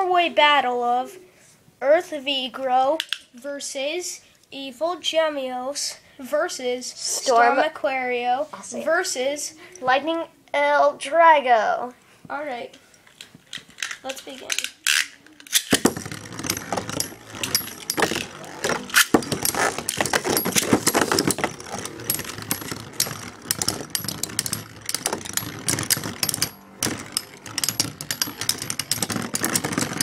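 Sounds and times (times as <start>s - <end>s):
spinning tops rattling and scraping: 13.0s - 30.0s
sharp clicks of tops hitting: 13.8s - 30.0s.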